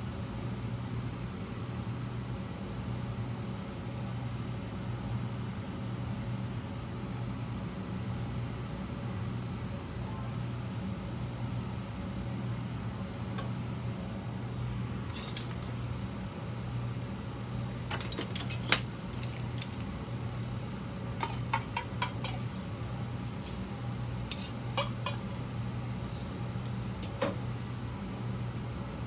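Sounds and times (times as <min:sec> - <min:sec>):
steady low hum: 0:00.0 - 0:29.0
utensils clinking on dishes: 0:17.9 - 0:19.8, 0:24.3 - 0:25.3.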